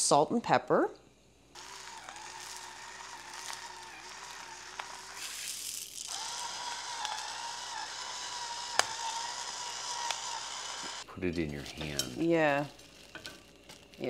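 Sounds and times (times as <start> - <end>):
electric grinder motor whine: 1.6 - 11.1.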